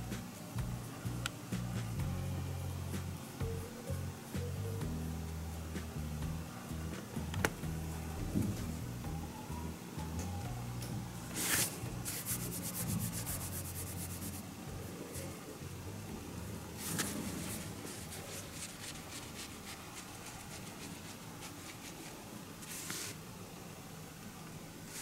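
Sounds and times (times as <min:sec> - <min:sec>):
rubbing and scratching of fabric: 0:11.4 - 0:15.5, 0:16.8 - 0:23.3.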